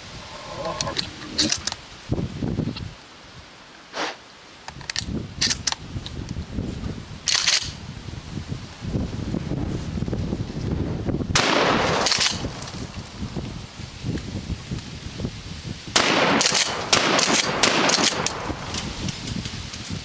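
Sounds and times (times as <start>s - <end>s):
shotgun pump clacks: 4.7s - 5.8s, 7.3s - 7.8s, 12.0s - 12.5s, 16.4s - 18.4s
shotgun shots: 11.4s - 12.6s, 16.0s - 18.7s.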